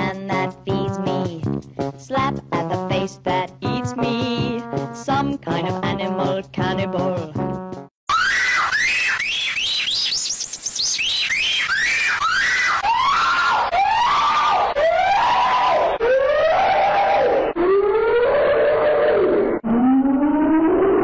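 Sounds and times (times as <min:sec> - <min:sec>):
shrill squealing cry: 0:08.1 - 0:10.2, 0:11.0 - 0:19.2.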